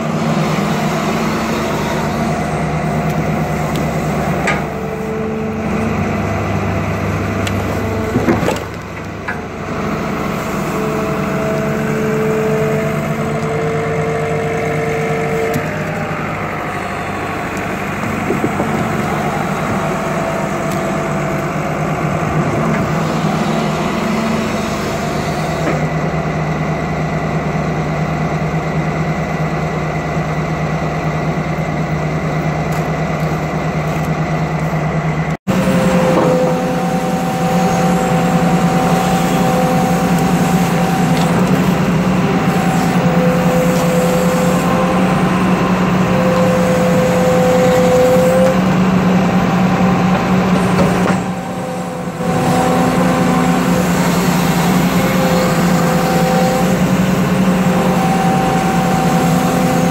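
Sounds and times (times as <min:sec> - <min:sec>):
excavator diesel engine running: 0:00.0 - 0:59.9
hydraulic whine: 0:00.0 - 0:59.9.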